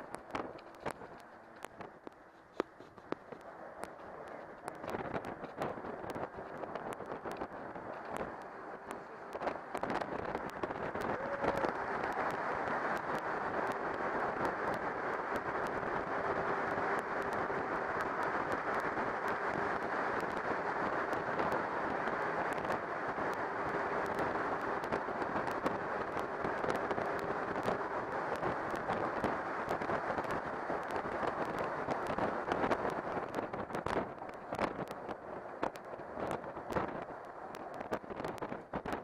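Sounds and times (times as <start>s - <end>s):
bus road noise in tunnel: 0.0s - 38.8s
crackling pops: 0.0s - 39.0s
faint steady hum: 0.0s - 39.0s.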